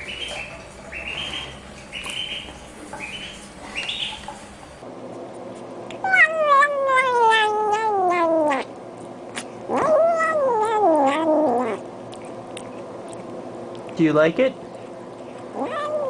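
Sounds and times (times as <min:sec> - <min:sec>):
kitten calling: 0:06.0 - 0:08.7, 0:09.7 - 0:11.8, 0:15.6 - 0:16.0.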